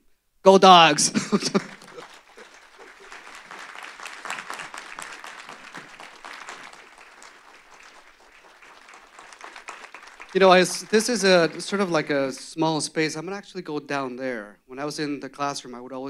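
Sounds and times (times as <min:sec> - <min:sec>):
audience applauding: 0:01.2 - 0:12.4.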